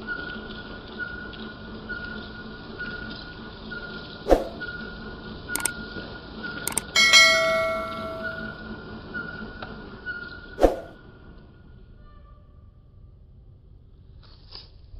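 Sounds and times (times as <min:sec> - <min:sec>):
sharp mouse clicks: 0:06.7 - 0:06.9
bright bell chime: 0:06.7 - 0:08.6.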